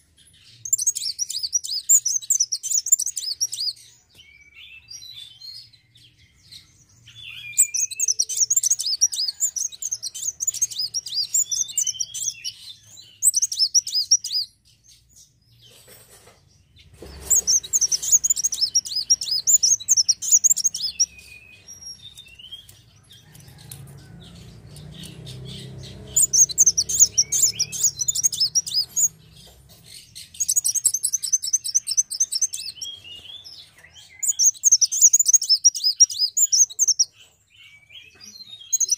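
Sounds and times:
sunbird high twittering: 7.0 - 14.6, 16.8 - 23.6, 24.7 - 38.9.

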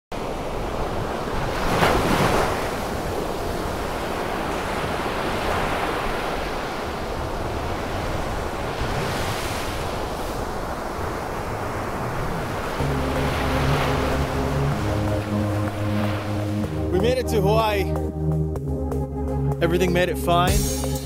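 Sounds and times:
surf breaking on rocky shore: 0.2 - 16.5.

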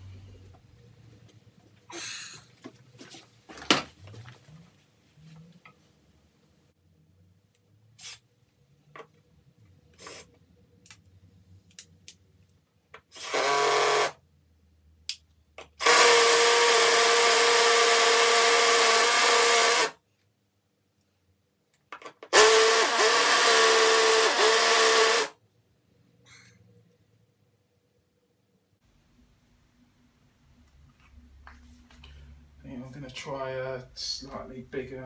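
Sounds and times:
cordless drill boring into tile: 13.1 - 14.2, 15.8 - 20.0, 22.3 - 25.4.

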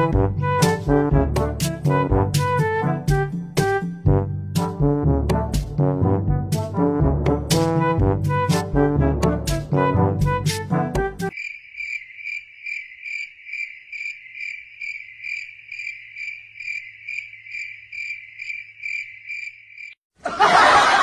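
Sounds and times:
cricket chirping trill: 11.3 - 20.0
loud laughter: 20.2 - 21.0.

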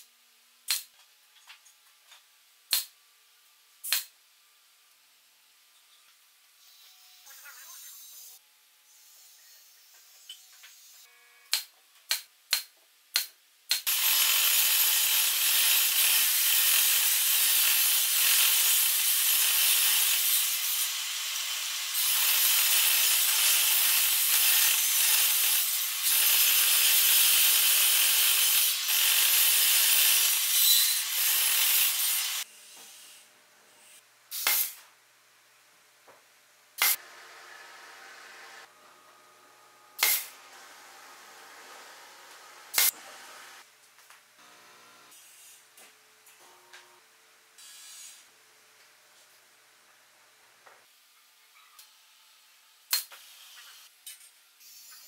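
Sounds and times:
table saw cutting wood: 13.9 - 33.2, 40.0 - 43.6.

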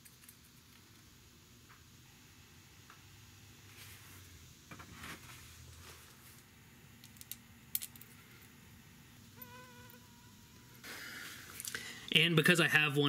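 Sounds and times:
steady buzzing tone: 6.4 - 12.5.

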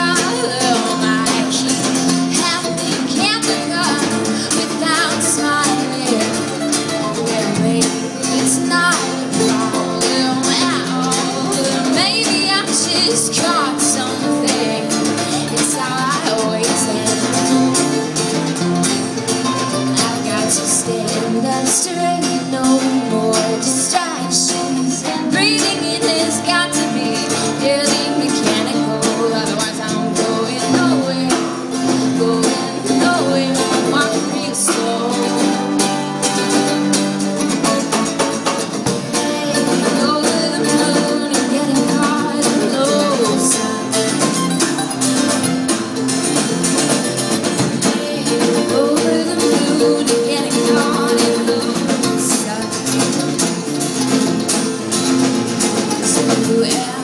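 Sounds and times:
woman singing: 0.0 - 37.9, 38.9 - 57.0
drum kit: 0.0 - 57.0
mandolin: 0.0 - 57.0
strummed acoustic guitar: 0.0 - 57.0.

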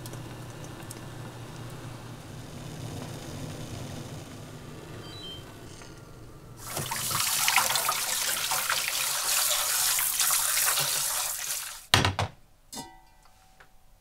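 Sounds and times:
hands rinsing seaweed: 6.6 - 11.9.

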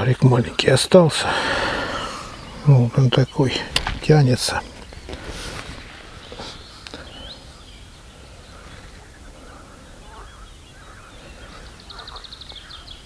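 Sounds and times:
faint birdsong: 0.0 - 13.0
bird trill: 1.7 - 13.0.

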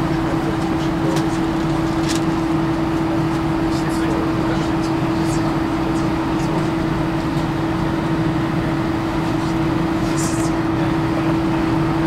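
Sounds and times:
aircraft cabin drone: 0.0 - 12.0.

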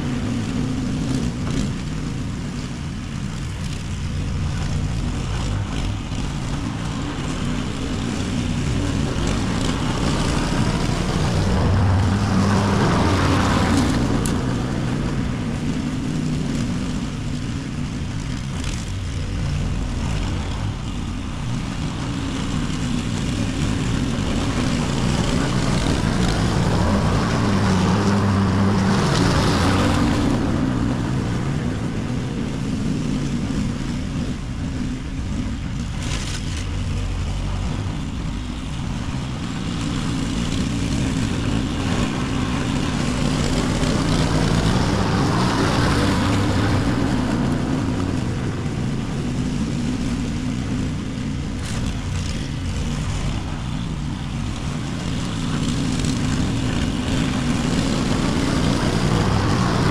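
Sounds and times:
lawn mower cutting grass: 0.0 - 59.9.

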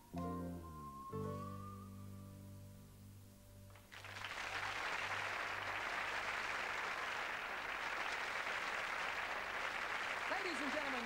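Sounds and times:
held music chord: 0.0 - 3.7
audience applauding: 3.7 - 11.0.

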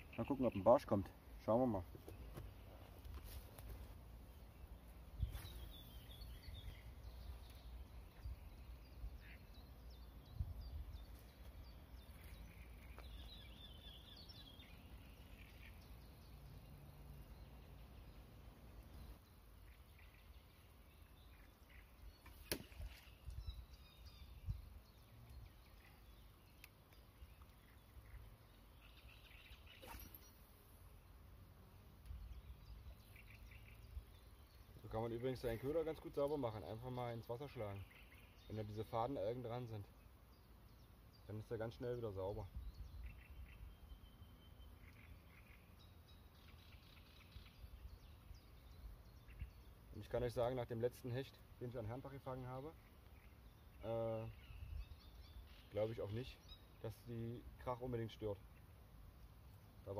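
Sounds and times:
birds chirping: 0.0 - 59.9
wind rumble on microphone: 10.2 - 11.1.

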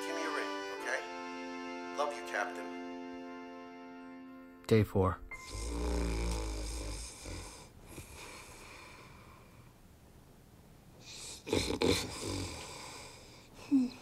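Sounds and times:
man snoring: 5.4 - 9.3, 11.1 - 13.5.

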